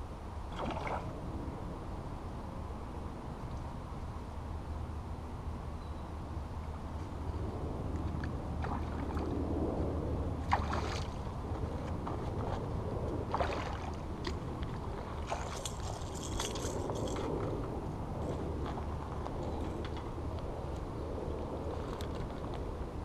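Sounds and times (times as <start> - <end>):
fish splashing in water: 0.5 - 1.1, 10.4 - 11.3, 13.3 - 14.0, 15.2 - 16.6.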